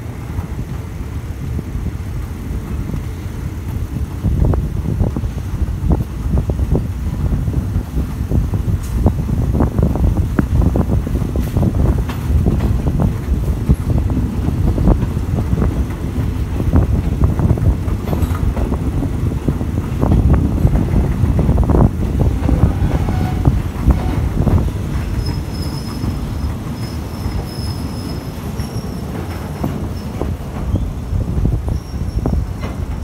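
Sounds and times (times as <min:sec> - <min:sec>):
train rumble: 0:00.0 - 0:33.0
high wheel squeal: 0:25.1 - 0:31.0, 0:31.7 - 0:32.6.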